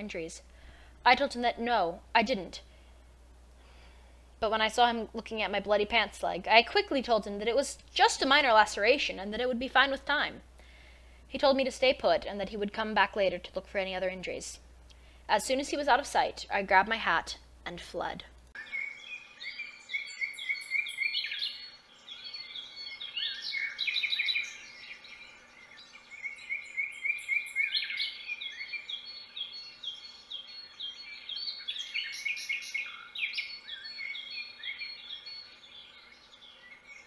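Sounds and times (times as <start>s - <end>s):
faint steady hum: 0.0s - 37.0s
birds singing and chirping: 18.6s - 37.0s.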